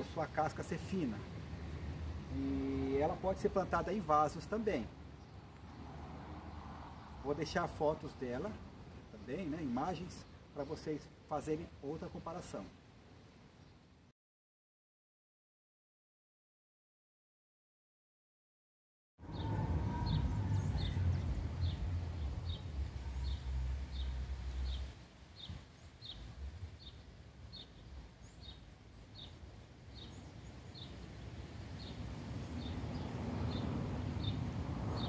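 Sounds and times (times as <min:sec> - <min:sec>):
low rumble: 0:19.2 - 0:24.8.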